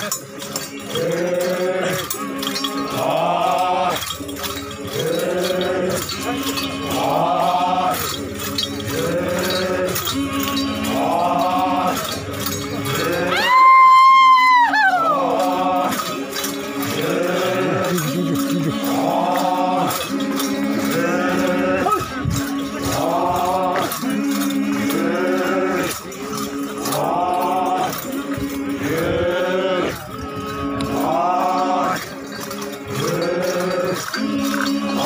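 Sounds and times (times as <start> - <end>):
brass bells clinking: 0.0 - 35.0
men chanting: 0.0 - 35.0
steady low drone: 0.8 - 13.6.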